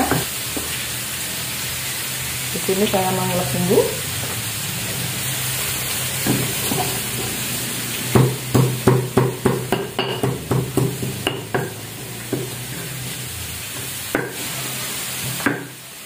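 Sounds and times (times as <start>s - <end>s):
vegetables sizzling in oil: 0.0s - 16.0s
stone pestle knocking in mortar: 8.2s - 11.7s.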